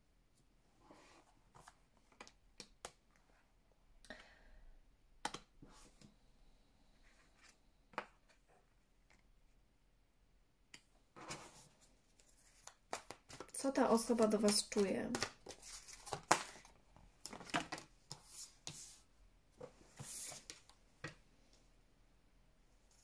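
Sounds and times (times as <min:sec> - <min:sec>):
cards sliding rustle: 0:11.2 - 0:20.8.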